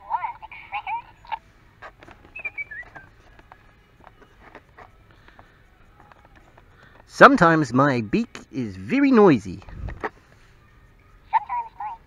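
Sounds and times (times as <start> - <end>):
toy bird electronic chirps: 2.3 - 3.2.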